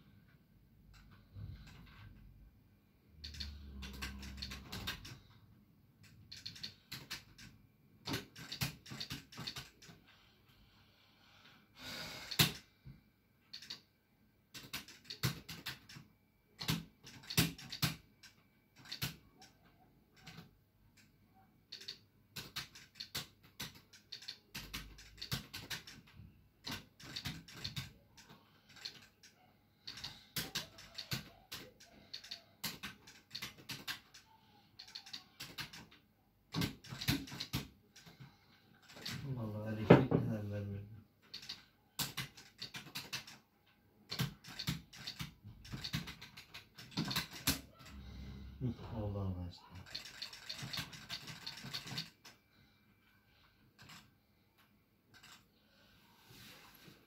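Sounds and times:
arcade buttons and joystick clattering: 3.2 - 5.4, 6.0 - 10.0, 14.5 - 21.1, 21.7 - 39.3, 41.2 - 43.5, 44.1 - 48.0, 49.8 - 52.4.

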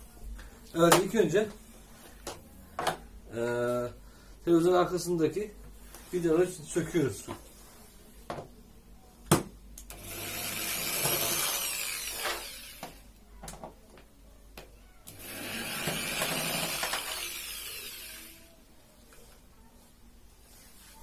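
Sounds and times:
electric drill whining: 9.9 - 13.0, 15.1 - 18.5.

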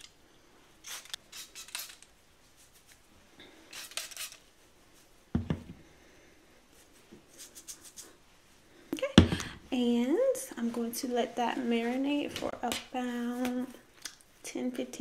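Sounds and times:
applicator bottle squirting liquid: 0.8 - 2.0, 3.7 - 4.4
bottle knocking on table: 5.4 - 5.8
fingers rubbing hair: 6.8 - 8.2.

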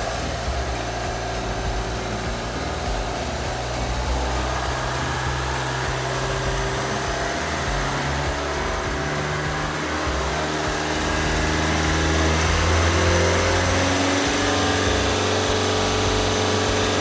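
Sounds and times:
drivetrain whirring hum: 0.0 - 17.0.

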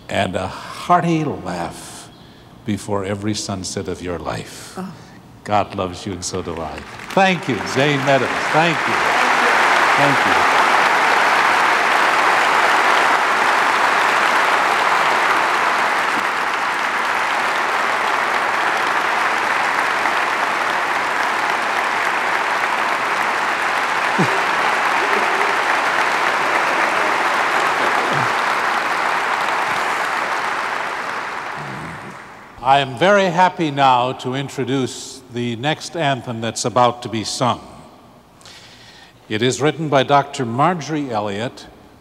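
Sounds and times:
large crowd applauding: 6.3 - 32.6.

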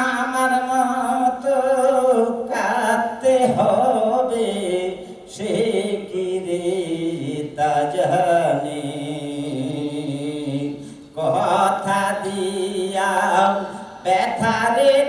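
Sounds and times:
man singing folk song: 0.0 - 15.0.

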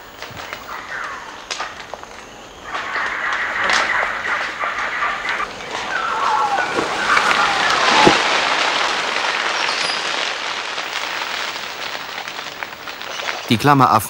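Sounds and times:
branch cracking: 0.0 - 13.6
branches and leaves rustling: 0.0 - 14.0
monkey call sliding down: 2.6 - 12.0.

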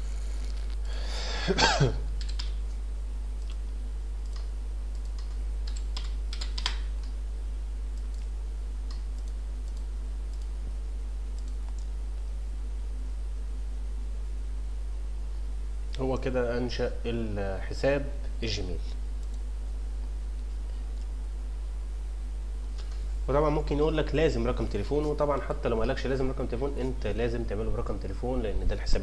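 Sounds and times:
steady electrical hum: 0.0 - 29.0
keyboard and mouse clicks: 2.2 - 2.6, 4.2 - 7.2, 8.0 - 8.3, 11.4 - 11.9.

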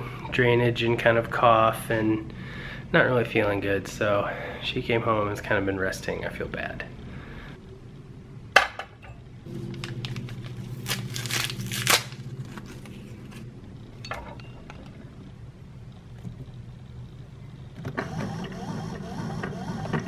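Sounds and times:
low steady hum: 0.0 - 20.0
wrapper torn and crinkled: 9.7 - 13.1.

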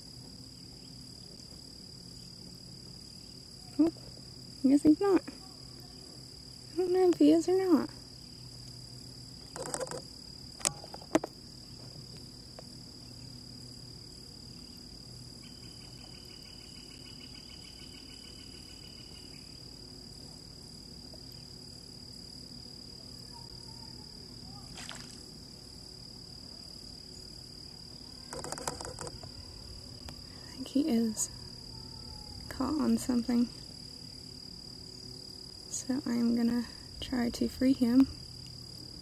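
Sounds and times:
insects droning: 0.0 - 39.0
sharp clicks: 28.3 - 29.2.

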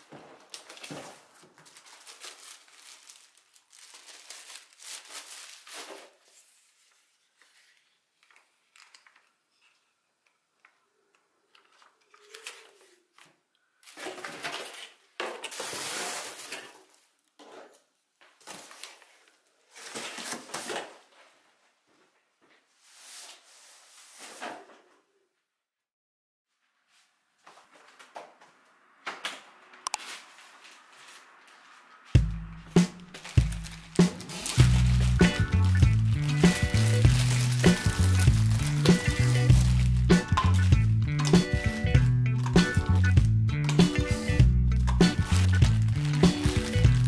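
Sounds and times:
plastic bag and paper rustling: 0.0 - 9.2, 11.6 - 17.3, 18.3 - 21.4, 30.0 - 43.4, 44.0 - 47.0.

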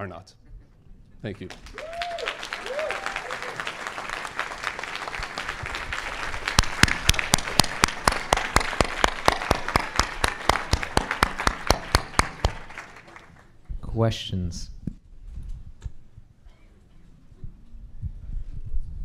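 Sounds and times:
audience applauding: 1.4 - 13.6
close sharp claps: 1.4 - 13.6.

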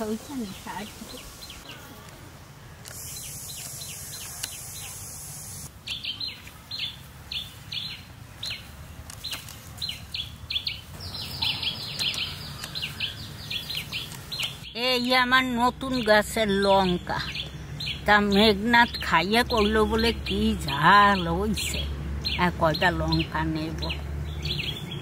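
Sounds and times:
high steady hiss: 0.0 - 15.0
bird chirping: 0.0 - 25.0.

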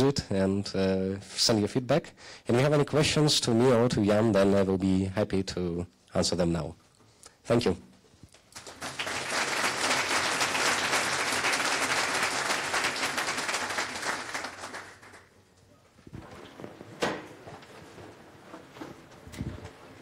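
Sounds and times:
audience applauding: 8.5 - 15.3.

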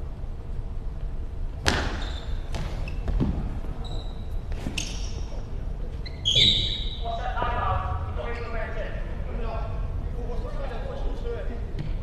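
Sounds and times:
ball thudding: 1.6 - 3.5.

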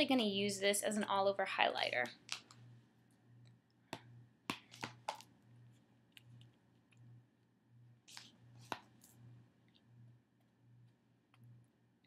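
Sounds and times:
faint pulsing low hum: 0.0 - 12.0.

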